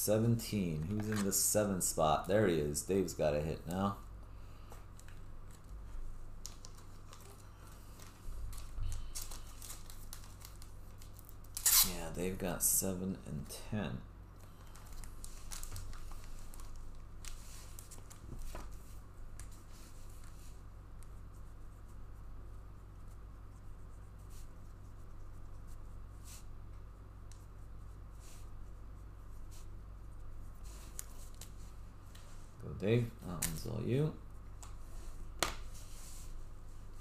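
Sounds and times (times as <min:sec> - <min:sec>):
steady low hum: 0:00.0 - 0:37.0
cards and packaging rustling: 0:06.4 - 0:11.9, 0:14.6 - 0:18.8.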